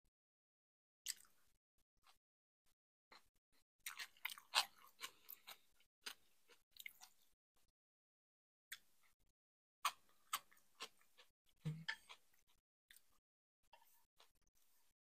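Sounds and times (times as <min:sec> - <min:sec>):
person chewing crunchy food: 0:01.1 - 0:01.4, 0:03.1 - 0:07.2, 0:09.8 - 0:13.2.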